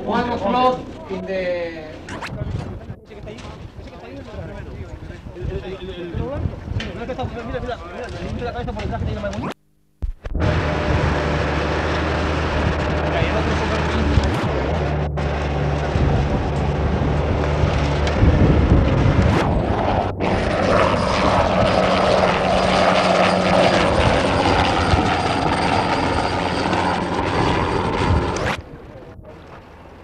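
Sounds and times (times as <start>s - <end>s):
thin high whine: 9.2s - 29.1s
aircraft engine drone: 10.4s - 30.0s.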